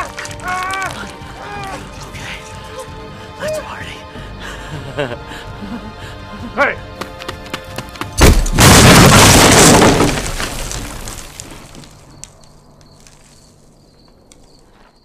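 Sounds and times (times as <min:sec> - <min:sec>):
falling debris ticks: 0:00.0 - 0:01.2, 0:08.2 - 0:14.8
explosion with shattering debris: 0:08.2 - 0:11.8.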